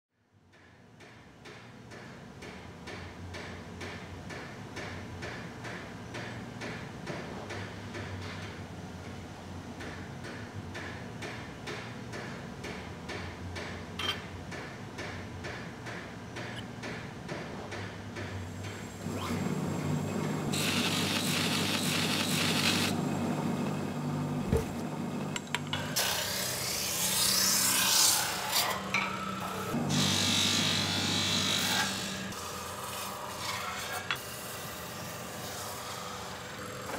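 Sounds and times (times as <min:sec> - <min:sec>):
workshop machine humming: 0:18.6 - 0:36.9.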